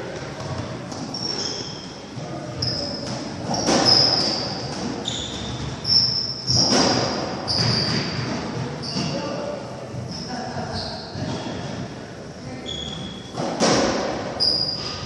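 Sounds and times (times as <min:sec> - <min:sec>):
shoes squeaking on wooden floor: 0:01.0 - 0:01.9, 0:02.6 - 0:09.3, 0:12.6 - 0:13.2
ball hitting court walls: 0:02.6 - 0:09.1, 0:13.3 - 0:15.0.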